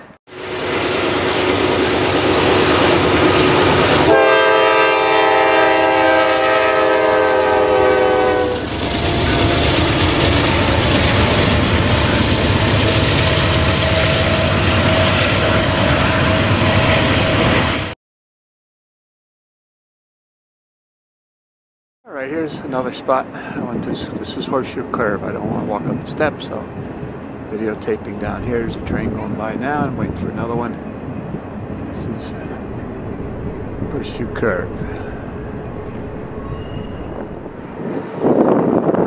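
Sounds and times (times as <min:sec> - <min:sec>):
diesel locomotives rumbling: 0:00.0 - 0:17.9, 0:22.3 - 0:39.0
train air horn blast: 0:03.5 - 0:09.8, 0:32.4 - 0:37.6.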